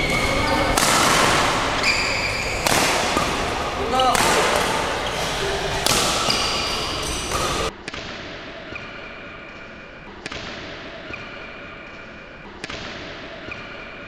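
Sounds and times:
racket striking shuttlecock: 0.0 - 8.9, 12.6 - 13.8.

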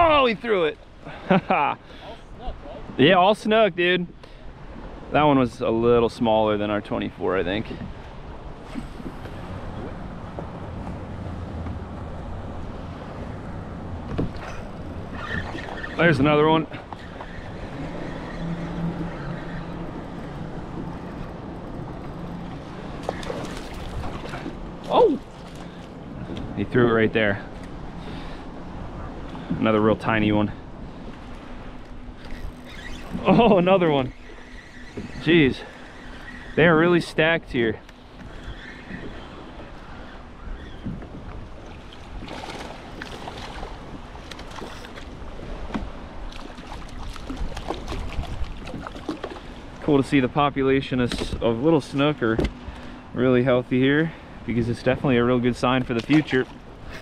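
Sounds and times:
wind rumbling on microphone: 7.1 - 53.2
wind noise on microphone: 46.9 - 49.2.

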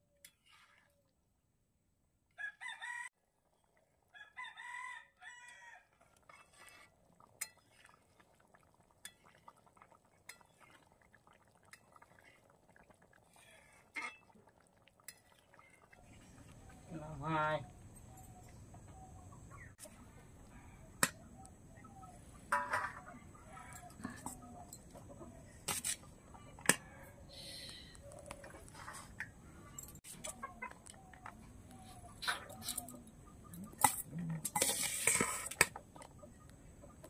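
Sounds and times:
rooster crowing: 2.4 - 3.1, 4.1 - 5.9.

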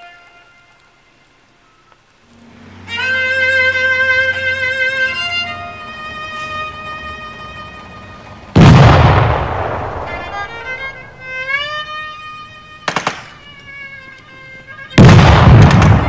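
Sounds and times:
violin music: 0.0 - 16.0
loud explosion booms: 8.6 - 10.2, 15.0 - 16.0
sharp crack: 8.6 - 12.0, 12.9 - 13.8, 14.9 - 16.0.

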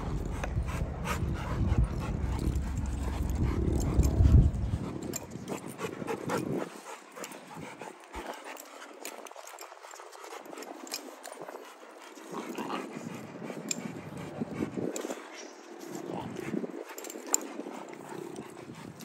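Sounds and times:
low rumbling noise: 0.0 - 5.4
dogs panting: 0.0 - 19.0.

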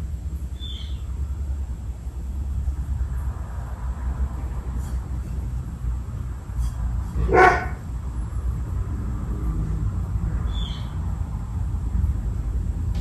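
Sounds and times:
ceiling fan low rumble: 0.0 - 13.0
dog barking: 7.2 - 7.8.

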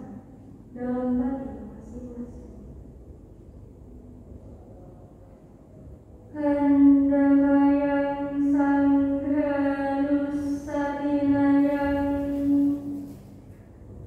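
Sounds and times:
woman chanting in monotone: 0.0 - 2.8, 6.3 - 13.2.

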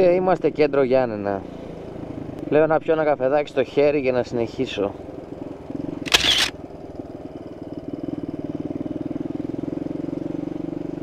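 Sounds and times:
motorcycle engine running: 3.7 - 11.0.

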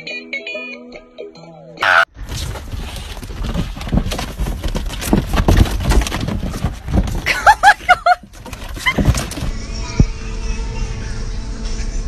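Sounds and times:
running footsteps: 2.4 - 10.2.

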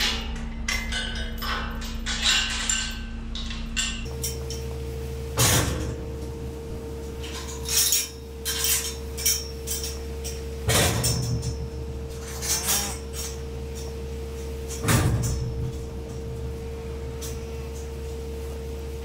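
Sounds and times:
metallic clanks and clinks: 0.0 - 4.7, 7.2 - 16.4
low mechanical hum: 0.0 - 19.0.

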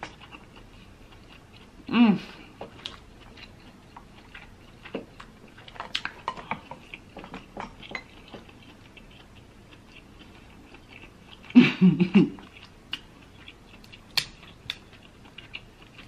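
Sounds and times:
crab shell cracking and snapping: 13.9 - 14.8.

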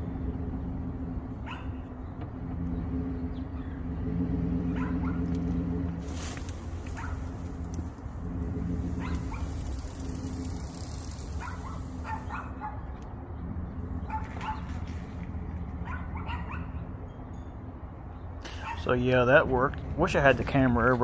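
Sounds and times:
truck engine running under load: 0.0 - 12.4
dog barking: 1.4 - 1.9, 4.8 - 5.3, 7.0 - 7.4, 9.0 - 9.6, 11.4 - 12.9, 14.1 - 14.7, 15.8 - 16.8, 18.6 - 18.9.

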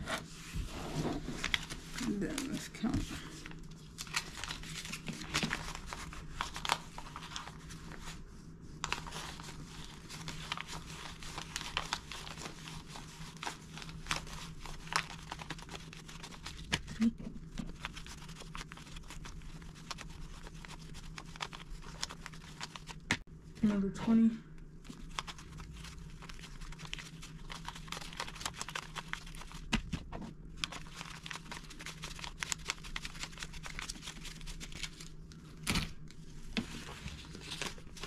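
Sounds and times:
banknotes being counted by hand: 25.1 - 30.0, 30.6 - 35.0.

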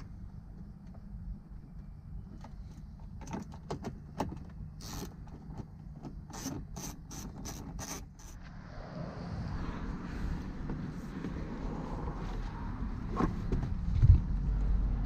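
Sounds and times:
steady low hum: 0.0 - 7.2.

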